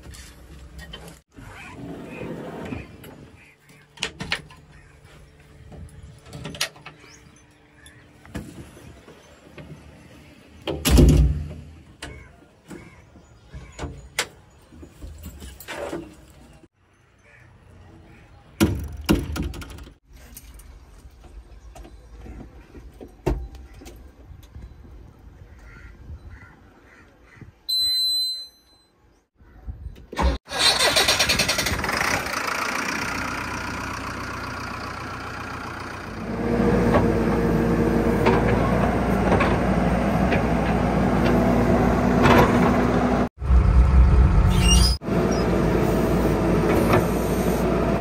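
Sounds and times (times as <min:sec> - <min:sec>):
hatch and door clicks and clunks: 0:18.6 - 0:20.0.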